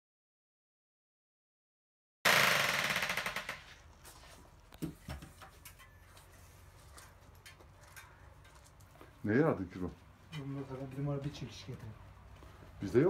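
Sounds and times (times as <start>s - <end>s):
electric hammer rattling: 2.3s - 3.8s.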